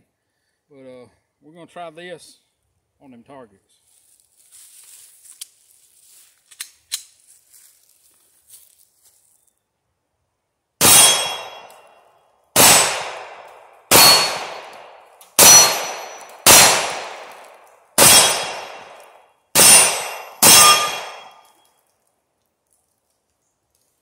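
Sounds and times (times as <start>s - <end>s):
pistol shots echoing: 10.8s - 11.9s, 12.6s - 21.6s.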